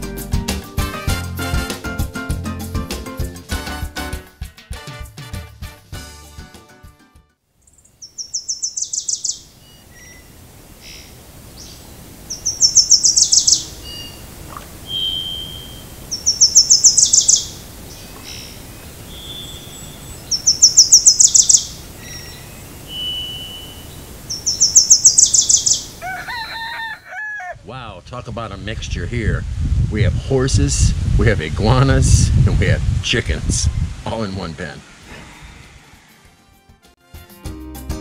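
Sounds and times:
songbird singing phrase: 7.6 - 26.0
single whistled bird notes: 14.9 - 17.5, 18.1 - 25.8.

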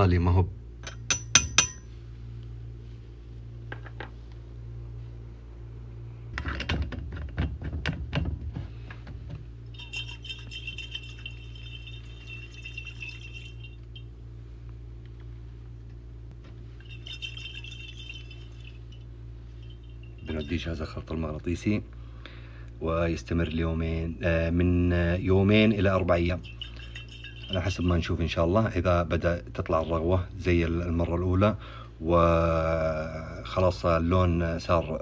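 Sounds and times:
steady low hum: 0.0 - 35.0
glass bottle knocks and clinks: 0.8 - 1.9, 9.7 - 14.1, 16.4 - 19.0, 26.3 - 27.9.

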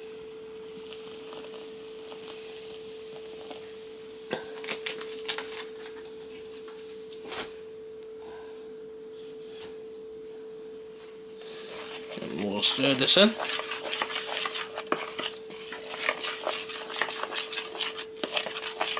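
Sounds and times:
sparkling water fizzing: 0.6 - 4.0.

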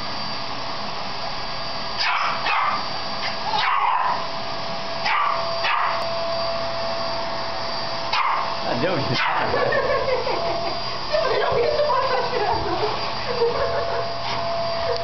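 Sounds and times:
vacuum cleaner whining: 0.0 - 15.0
dog barking sharply: 2.0 - 4.2, 5.0 - 6.0, 8.1 - 8.5, 9.2 - 9.5.

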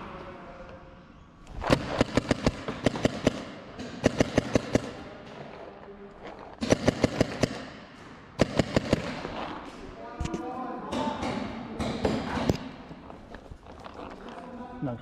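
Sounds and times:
paintball markers firing: 1.5 - 5.1, 6.6 - 9.6.

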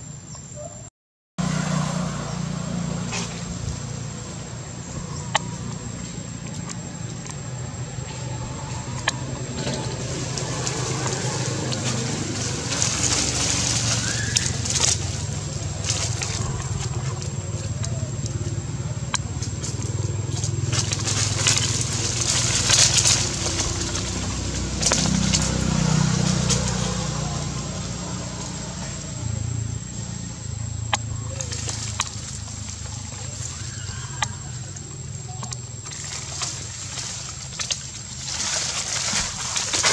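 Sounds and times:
short rustles and crackles: 35.3 - 39.9.

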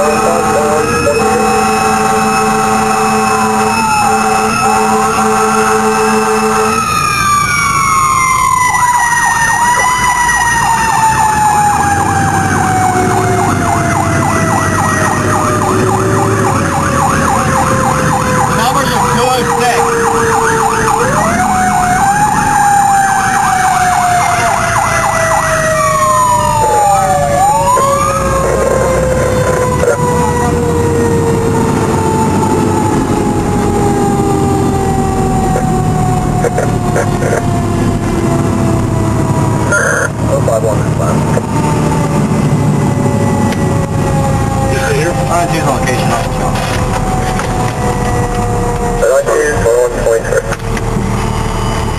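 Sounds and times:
air horn blast: 0.0 - 6.9
electronic siren yelping: 0.0 - 51.9
fire engine rumbling: 0.0 - 51.9
mechanical siren wail: 0.0 - 51.9
road noise: 0.0 - 51.9.

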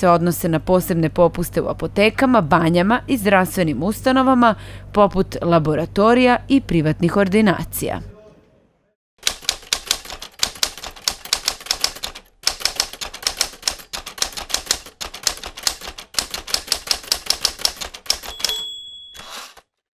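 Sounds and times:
manual typewriter typing: 9.2 - 19.8.

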